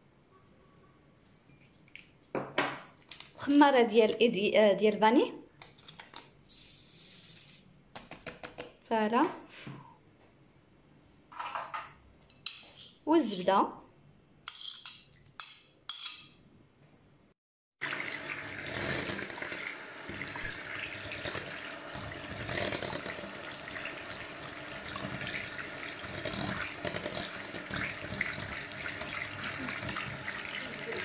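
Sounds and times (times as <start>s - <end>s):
spoon clinking ceramic: 14.5s - 16.4s
electric hand mixer whisking: 17.8s - 31.0s.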